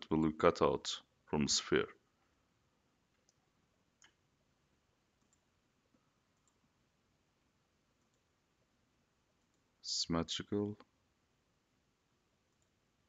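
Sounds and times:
faint computer mouse clicks: 4.0 - 4.2, 6.4 - 6.6.

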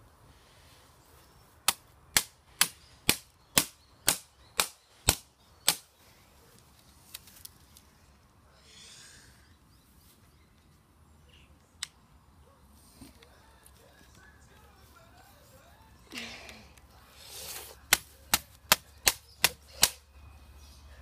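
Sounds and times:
soft rustle: 6.0 - 8.3, 9.8 - 10.9.

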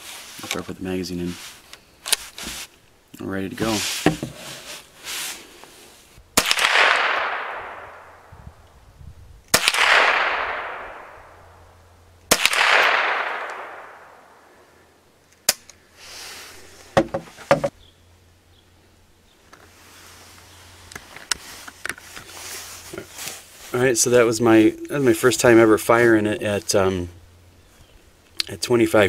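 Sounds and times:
rifle shots with echo: 6.4 - 8.3, 9.5 - 11.4, 12.3 - 14.5.

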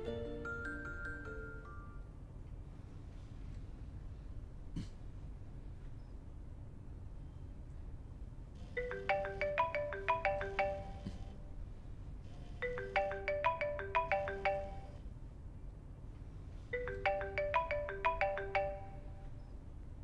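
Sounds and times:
phone ringtone melody: 0.0 - 2.1, 8.8 - 11.3, 12.6 - 15.0, 16.8 - 19.5.

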